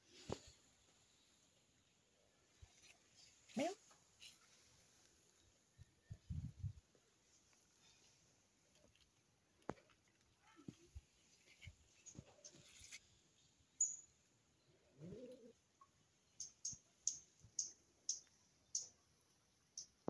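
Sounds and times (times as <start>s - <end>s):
small bird chirping: 11.4s - 20.0s.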